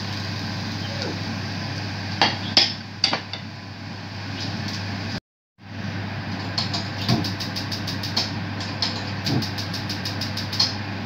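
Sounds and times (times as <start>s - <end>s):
steady low hum: 5.0s - 11.0s
gas stove igniter clicking: 6.6s - 10.8s.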